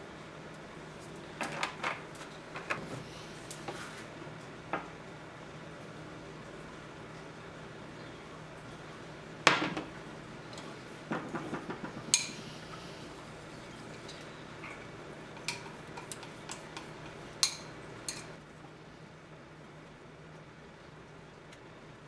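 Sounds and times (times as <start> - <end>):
chopsticks clicking against glass bowl: 15.4 - 18.3.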